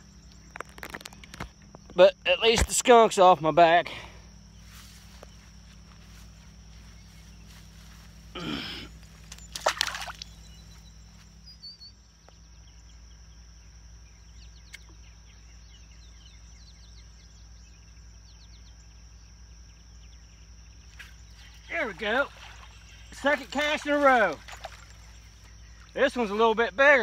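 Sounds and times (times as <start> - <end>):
outdoor background: 0.0 - 27.0
faint bird chirps: 4.0 - 27.0
fish splashing into water: 9.2 - 10.4, 21.8 - 26.0.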